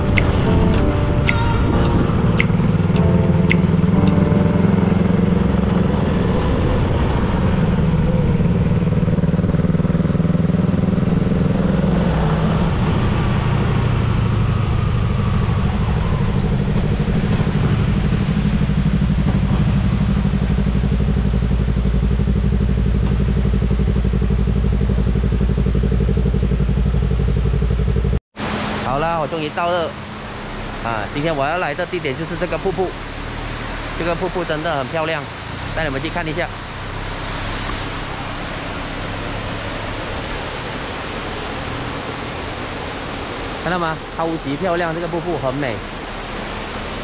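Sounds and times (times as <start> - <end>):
motorcycle engine running: 2.0 - 28.2.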